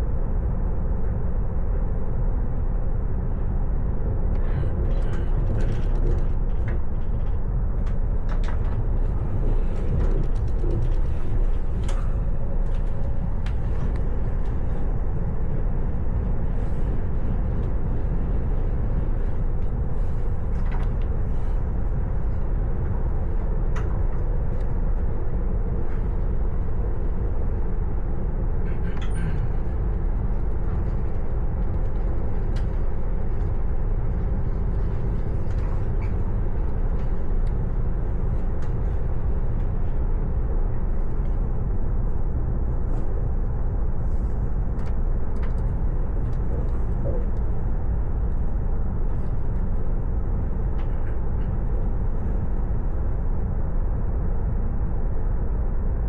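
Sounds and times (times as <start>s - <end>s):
train rumbling: 1.7s - 56.0s
faint clicks and knocks: 4.3s - 14.6s.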